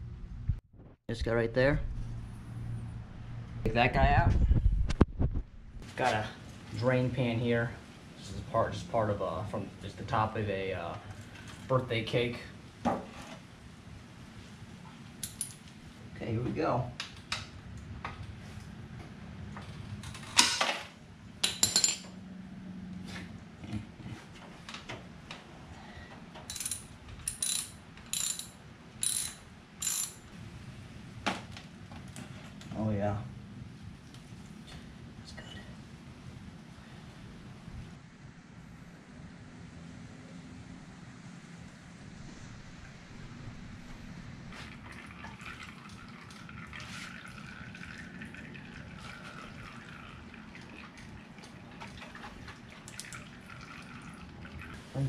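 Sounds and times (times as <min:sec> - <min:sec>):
socket ratchet clicking: 0:26.5 - 0:30.2
oil dripping: 0:44.5 - 0:54.8.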